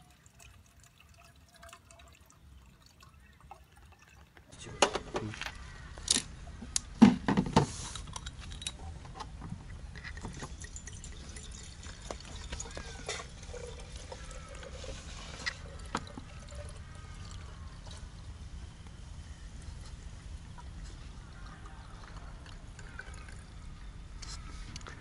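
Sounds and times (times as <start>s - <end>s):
liquid trickling into flask: 0.0s - 4.8s, 9.9s - 18.4s, 20.0s - 24.2s.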